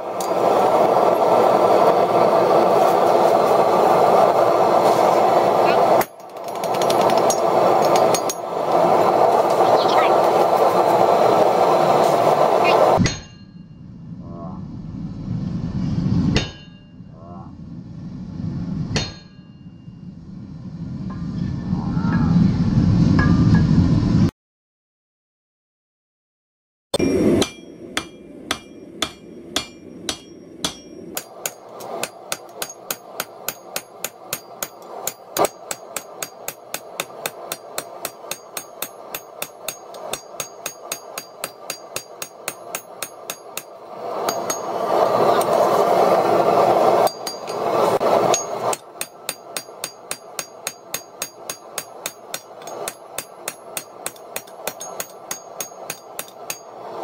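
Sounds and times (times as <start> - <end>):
loud rushing noise: 0.0 - 6.0, 7.1 - 13.2, 27.0 - 57.0
hammer striking steel on anvil: 6.0 - 8.5, 13.0 - 13.7, 16.3 - 17.0, 18.9 - 19.8, 27.0 - 45.0, 47.0 - 56.9.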